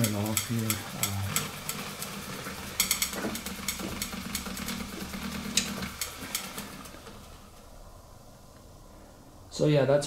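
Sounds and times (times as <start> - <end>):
electric motor humming: 0.0 - 7.6.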